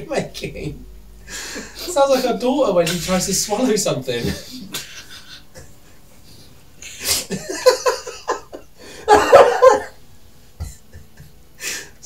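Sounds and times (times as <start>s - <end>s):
breathy huffs: 1.2s - 2.2s, 11.6s - 12.0s
person stifling laughter: 4.3s - 5.8s, 6.8s - 10.0s.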